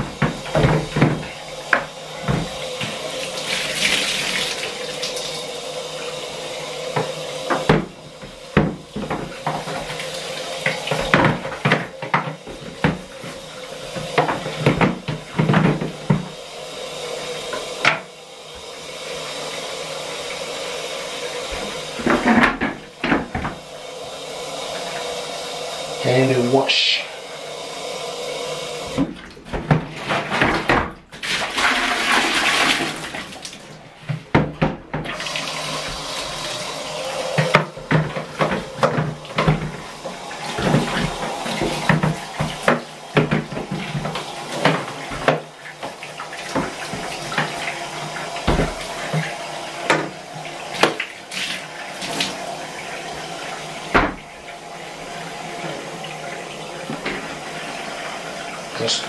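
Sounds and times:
plastic knocks and clatter: 0.0s - 3.0s, 7.0s - 10.0s, 10.6s - 16.4s, 21.6s - 23.6s, 28.9s - 31.2s, 34.0s - 35.2s, 37.4s - 39.8s, 40.5s - 47.6s
bath tap running: 0.0s - 59.0s.

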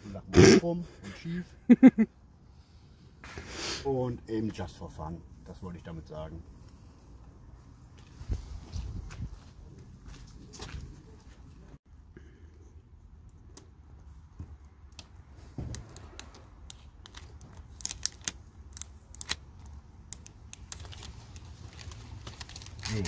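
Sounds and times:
tape crackling on glass: 14.8s - 23.0s.

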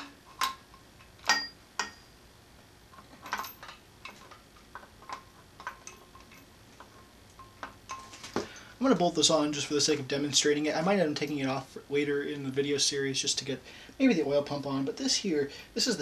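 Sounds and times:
light metal clicks and clinks: 0.0s - 2.2s, 2.9s - 8.8s.

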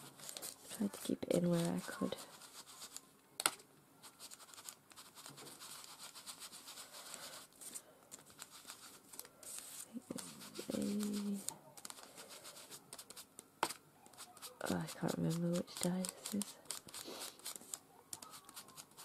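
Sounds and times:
scratchy rubbing on paper: 0.0s - 3.0s, 4.0s - 19.0s
person humming: 9.9s - 11.5s.

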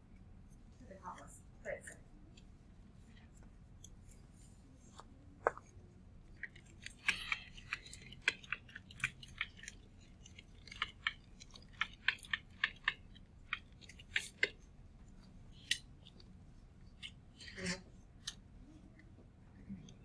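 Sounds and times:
pen tip tapping and scratching: 6.4s - 14.6s.

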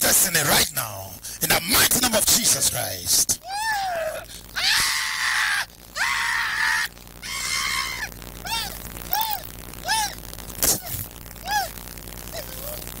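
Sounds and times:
man screaming hoarsely: 3.4s - 10.2s.

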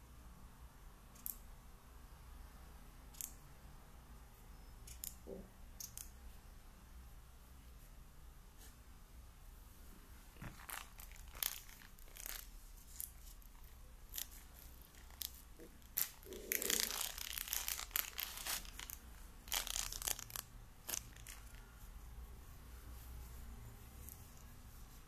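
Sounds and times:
plastic bag crinkling: 10.4s - 21.7s.

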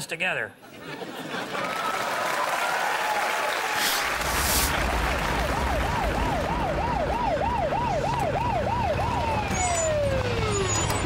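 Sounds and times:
police siren yelping: 5.4s - 11.0s.

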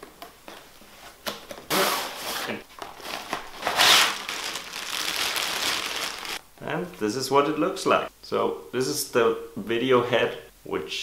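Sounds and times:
cardboard scraping: 1.0s - 4.3s
plastic bag rustling: 1.8s - 6.4s.

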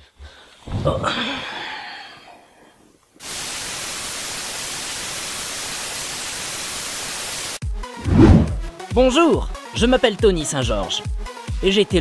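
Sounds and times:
television static hiss: 3.2s - 7.6s.

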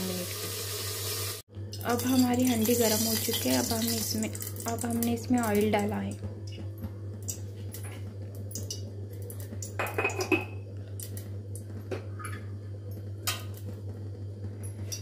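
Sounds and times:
low steady hum: 1.5s - 15.0s
metal pots and utensils clinking: 9.6s - 10.6s.

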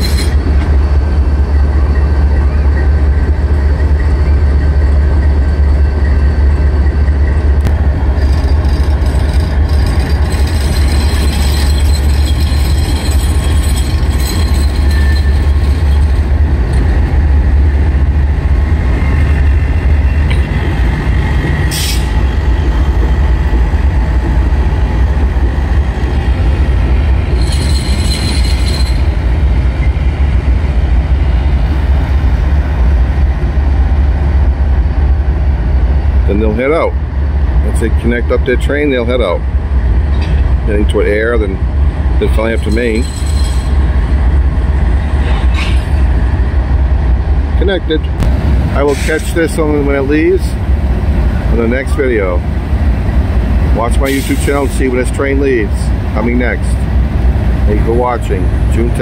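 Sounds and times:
diesel locomotive engine rumble: 0.0s - 59.0s
high-pitched wheel squeal: 9.5s - 16.2s, 27.3s - 29.2s.

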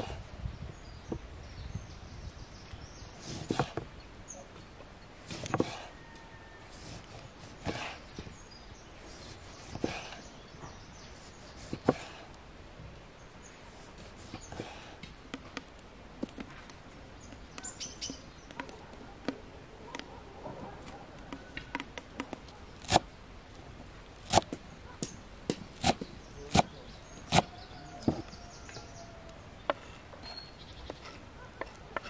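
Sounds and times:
knife chopping on wooden board: 5.3s - 5.9s, 6.8s - 8.0s, 9.6s - 10.1s, 11.6s - 12.2s, 24.3s - 26.7s
faint bird chirps: 26.0s - 31.8s.

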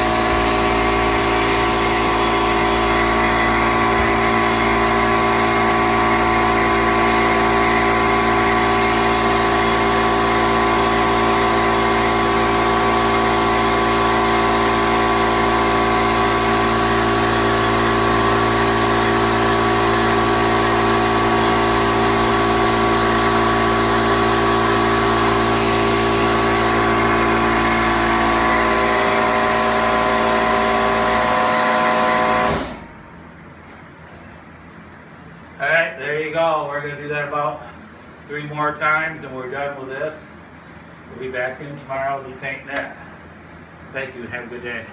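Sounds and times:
spray gun hissing: 7.0s - 27.5s, 32.3s - 32.9s.

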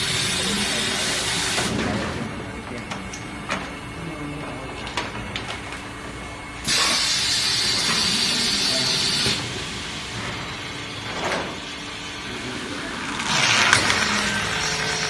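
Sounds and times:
loud air hiss: 6.6s - 10.1s.

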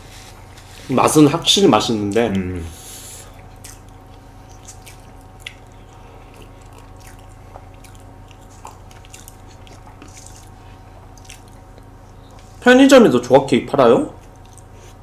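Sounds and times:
people chewing: 1.9s - 12.6s, 14.2s - 15.0s.

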